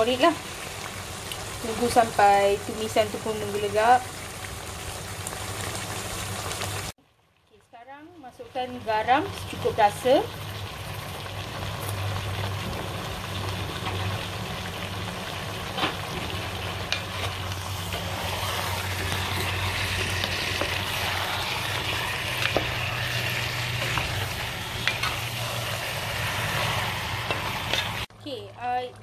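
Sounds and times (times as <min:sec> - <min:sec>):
curry sizzling and bubbling: 0:00.0 - 0:29.0
spatula stirring in pot: 0:16.1 - 0:28.1.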